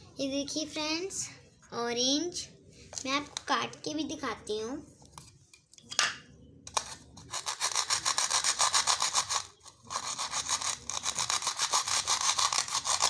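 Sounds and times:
plastic toy knife sawing: 6.7 - 13.0.

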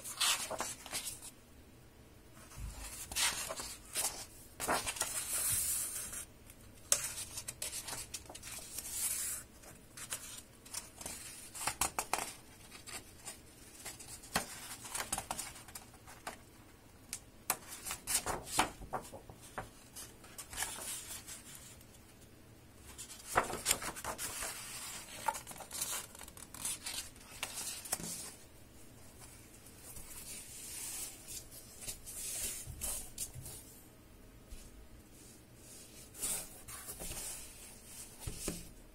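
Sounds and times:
book pages turning: 0.0 - 1.3, 2.5 - 6.2, 17.5 - 21.8, 22.9 - 28.4, 35.9 - 38.7.

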